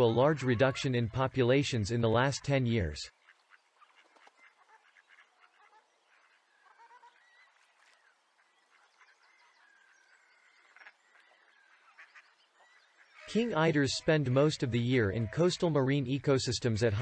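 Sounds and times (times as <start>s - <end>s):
distant animal calls: 0.0s - 17.0s.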